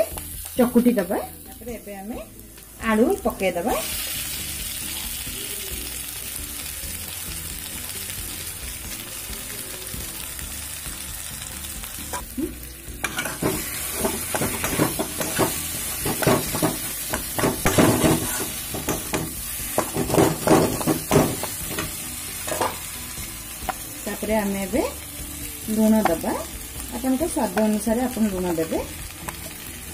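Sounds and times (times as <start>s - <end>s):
oil sizzling in pan: 0.0s - 29.9s
metal spatula scraping pan: 13.0s - 19.2s.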